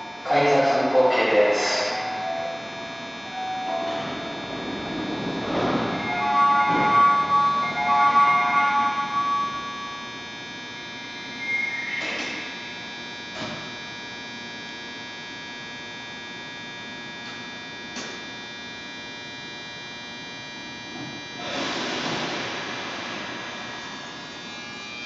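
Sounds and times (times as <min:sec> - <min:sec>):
electric train hum: 0:00.0 - 0:12.8, 0:20.2 - 0:25.0
chiming departure melody: 0:01.8 - 0:10.1
short tone: 0:01.9 - 0:10.3.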